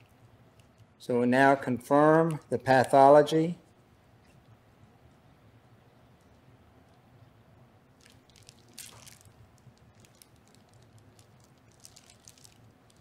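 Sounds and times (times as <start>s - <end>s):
gloved hands crackling and squishing: 7.9s - 13.0s
plastic rustle: 8.0s - 13.0s.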